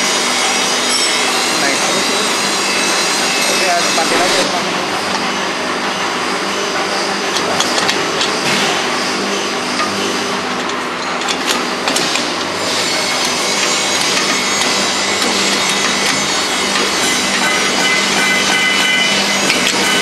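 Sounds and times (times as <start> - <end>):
steady machine hum: 0.0 - 20.0
metal clinks and scraping: 10.6 - 20.0.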